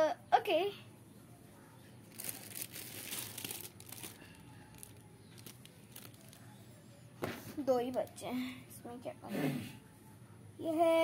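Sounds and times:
crinkly rustling of hands: 0:01.9 - 0:08.2.

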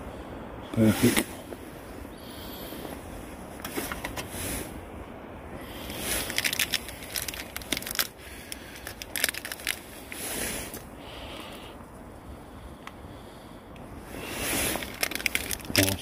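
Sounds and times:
plastic packaging crackling: 0:05.9 - 0:10.8, 0:14.7 - 0:16.0.

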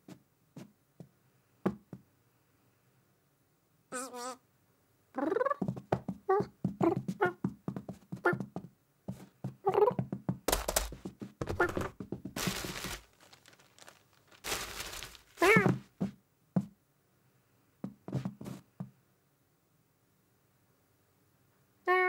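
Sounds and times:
chirping cat call: 0:03.9 - 0:04.4
rustling and scrabbling: 0:09.1 - 0:16.1.

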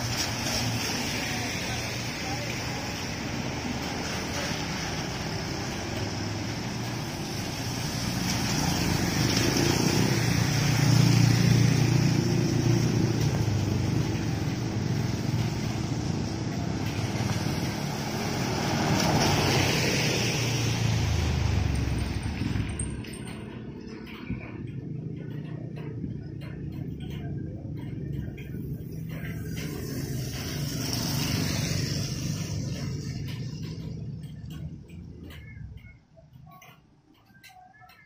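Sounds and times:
tyres hissing on wet road: 0:00.0 - 0:22.2, 0:29.0 - 0:34.2
motorcycles passing: 0:00.0 - 0:36.1
bus diesel engine rumbling: 0:00.0 - 0:37.9.

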